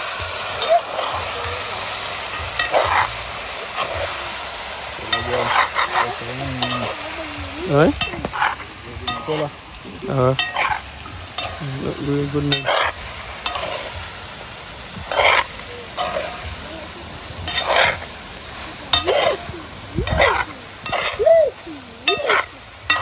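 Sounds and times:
curry sizzling in a pot: 0:00.0 - 0:23.0
spoon scraping a pot: 0:02.4 - 0:04.2, 0:12.5 - 0:14.0, 0:15.0 - 0:16.5, 0:17.4 - 0:18.1, 0:20.0 - 0:21.2, 0:22.1 - 0:23.0.

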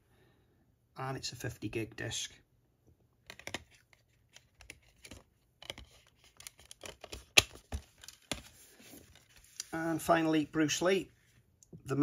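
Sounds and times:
packaging rustling: 0:03.3 - 0:09.7.

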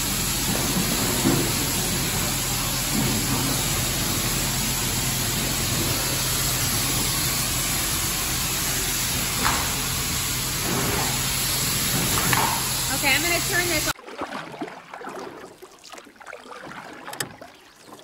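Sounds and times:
water spraying under pressure: 0:00.0 - 0:14.0.

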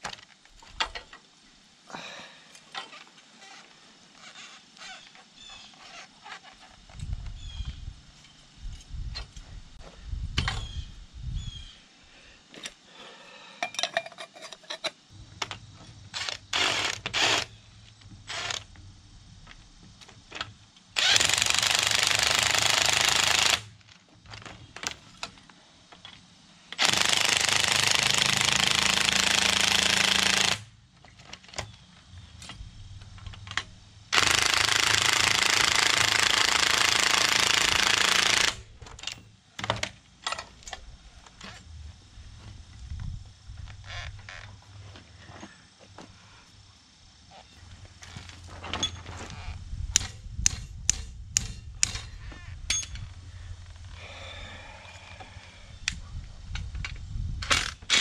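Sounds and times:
tool handling clicks and clanks: 0:13.6 - 0:17.2, 0:38.3 - 0:41.7, 0:48.0 - 0:49.3
impact wrench running: 0:21.0 - 0:23.7, 0:26.8 - 0:30.7, 0:34.1 - 0:38.8.

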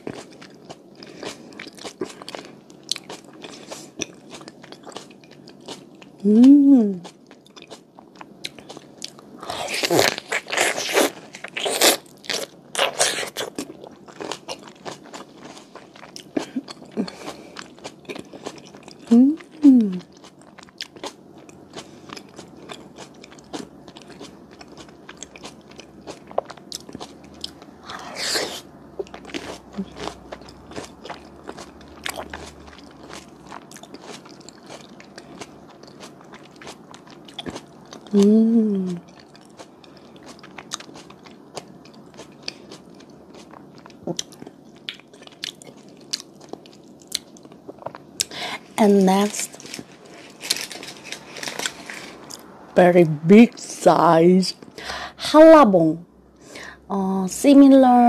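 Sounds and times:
close-miked chewing: 0:00.0 - 0:38.3, 0:38.9 - 0:52.5.

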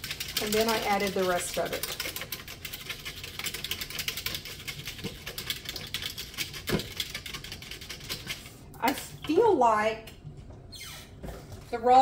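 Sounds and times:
whisk clicking in pitcher: 0:00.0 - 0:08.4.

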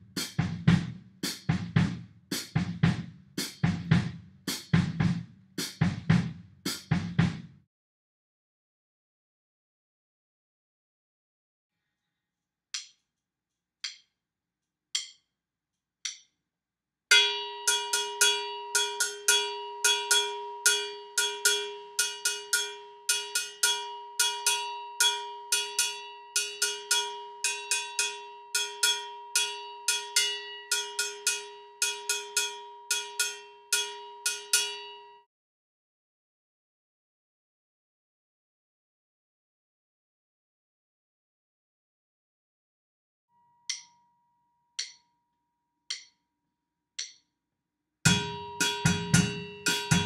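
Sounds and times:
cowbell samba pattern: 0:17.1 - 0:35.2, 0:48.1 - 0:50.0.

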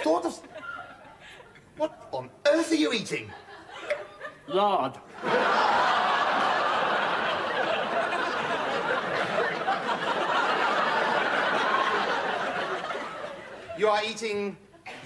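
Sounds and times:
studio audience laughing: 0:05.1 - 0:13.9.

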